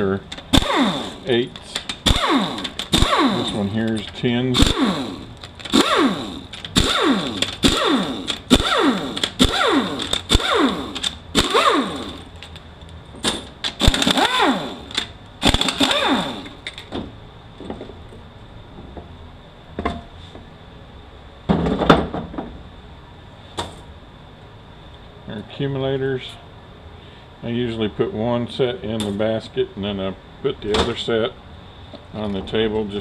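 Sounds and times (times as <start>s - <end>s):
pneumatic air ratchet bursts: 0.4s - 3.8s, 4.6s - 12.3s, 13.7s - 16.7s.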